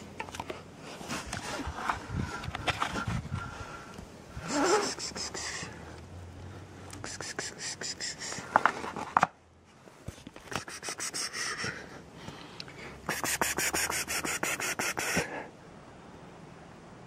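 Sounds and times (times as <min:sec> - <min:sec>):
rapid raspy scratching: 0:07.0 - 0:08.7, 0:10.4 - 0:11.7, 0:13.1 - 0:15.2.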